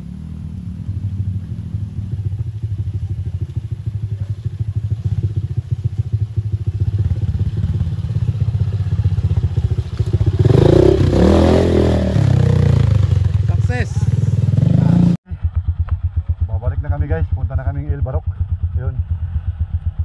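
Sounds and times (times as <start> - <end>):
motorcycle engine running: 0.0 - 20.0.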